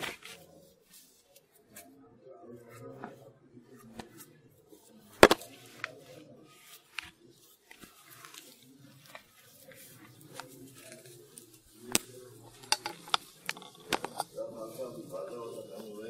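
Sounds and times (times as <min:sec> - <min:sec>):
low murmur of voices: 0:00.0 - 0:16.0.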